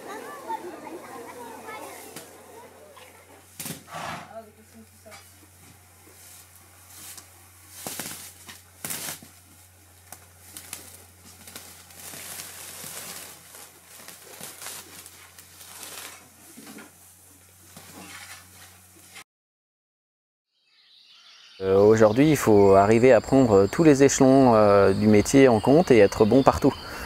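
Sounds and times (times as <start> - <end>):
hay rustling: 0.0 - 4.8, 5.4 - 19.2
pitchfork scraping stable floor: 12.0 - 19.2
low steady hum: 21.6 - 27.0.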